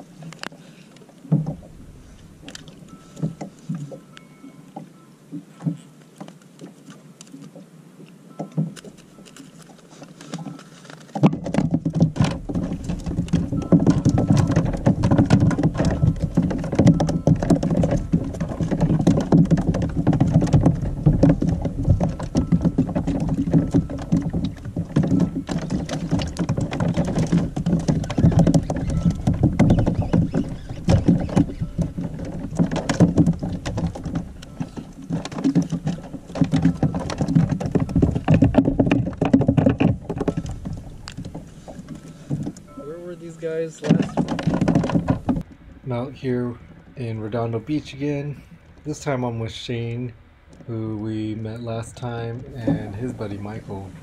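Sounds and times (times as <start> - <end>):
water sloshing against plastic hull: 0.0 - 54.0.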